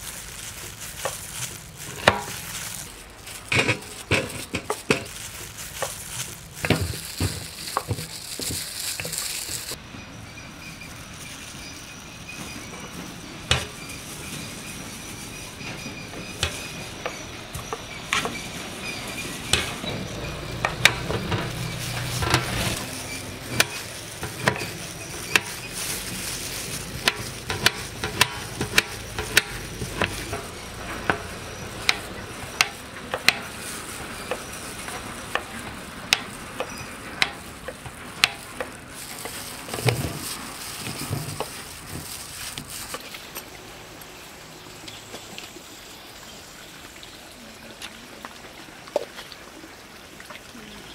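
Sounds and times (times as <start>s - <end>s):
pieces scraped into steel bowl: 0.6s - 9.8s, 20.6s - 43.0s.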